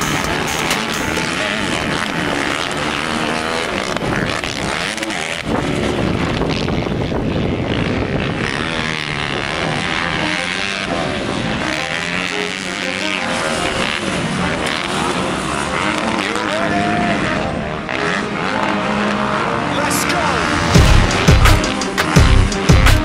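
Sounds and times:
motocross bike engines revving: 0.0s - 23.0s.

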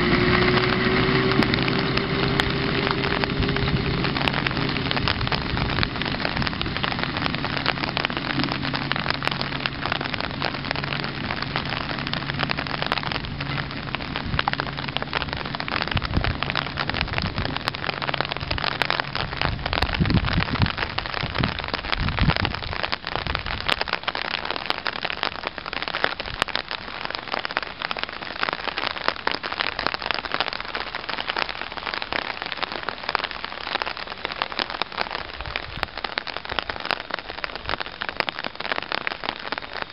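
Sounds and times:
diesel engine humming: 0.0s - 20.4s
rain pattering: 0.0s - 39.9s.

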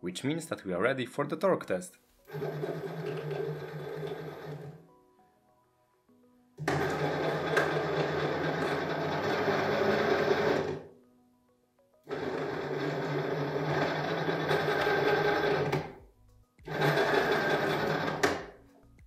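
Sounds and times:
electric motor whirring: 6.7s - 10.9s, 12.1s - 16.0s, 16.7s - 18.4s.

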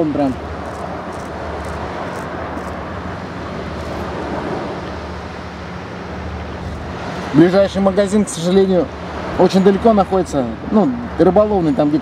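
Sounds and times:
wind: 0.0s - 12.0s.

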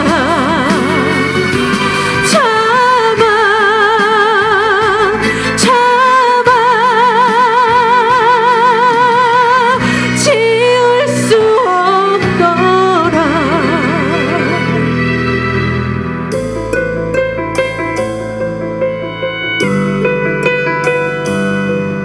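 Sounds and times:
woman singing a ballad: 0.0s - 15.0s
string accompaniment: 0.0s - 22.0s.

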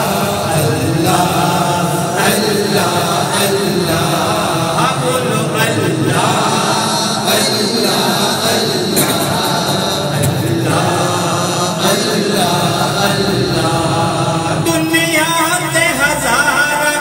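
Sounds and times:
men chanting devotional refrain: 0.0s - 17.0s.

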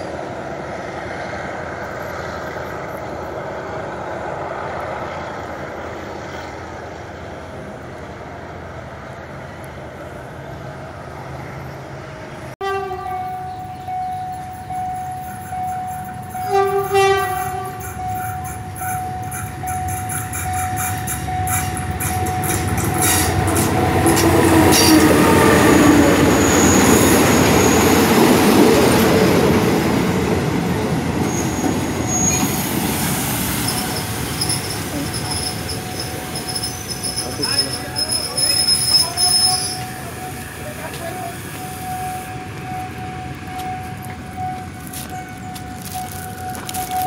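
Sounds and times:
locomotive and wheels rumbling: 0.0s - 47.0s
train horn: 12.6s - 13.7s, 16.3s - 20.1s, 20.8s - 26.7s
high wheel squeals: 13.3s - 29.0s, 31.1s - 47.0s.

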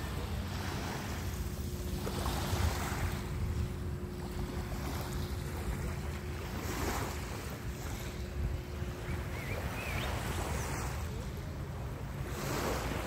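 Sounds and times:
faint steady hum: 0.0s - 13.0s
small waves lapping on pebble beach: 12.2s - 13.0s.

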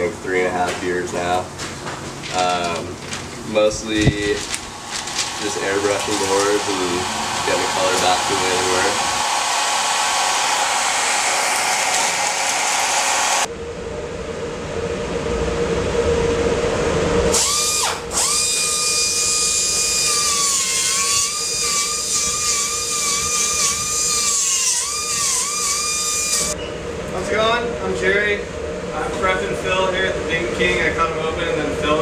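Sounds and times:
hair dryer blowing: 4.2s - 13.5s, 17.3s - 26.6s
pneumatic tool whining: 4.9s - 13.5s, 17.3s - 26.6s.

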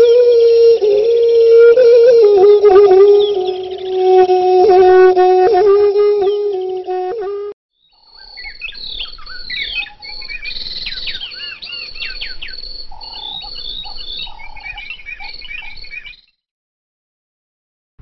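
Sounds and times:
small birds chirping: 7.8s - 16.4s.

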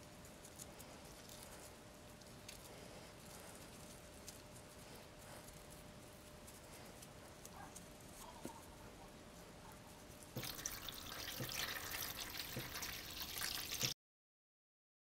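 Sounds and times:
water pouring and splashing: 10.4s - 14.0s.

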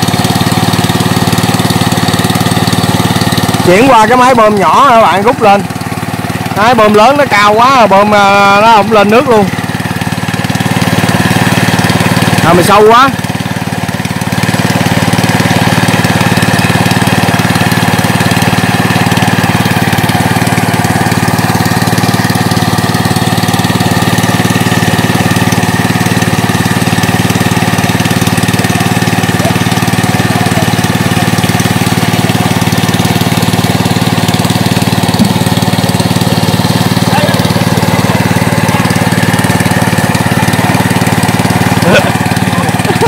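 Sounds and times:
engine-driven water pump running: 0.0s - 43.0s.

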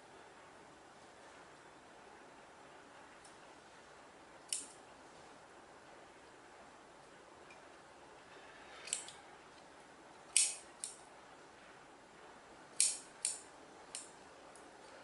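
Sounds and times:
scissors snipping yarn: 4.5s - 4.8s, 10.3s - 11.0s, 12.8s - 14.1s.

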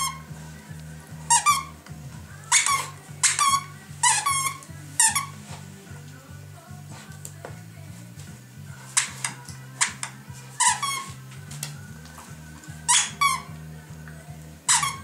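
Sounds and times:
dog toy squeaking: 0.0s - 0.3s, 1.2s - 1.8s, 2.4s - 5.4s, 8.9s - 11.2s, 12.8s - 13.6s, 14.7s - 15.0s.

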